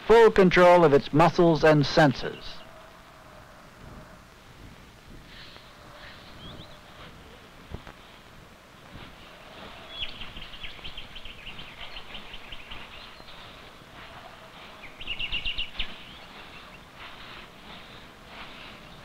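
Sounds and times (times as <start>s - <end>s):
faint outdoor hiss: 0.0s - 19.0s
bird chirping rapidly: 9.4s - 19.0s.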